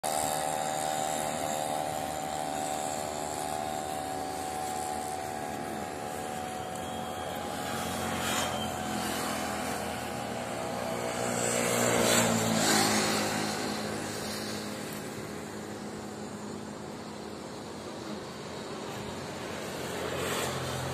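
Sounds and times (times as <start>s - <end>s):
highway traffic passing: 0.1s - 20.9s.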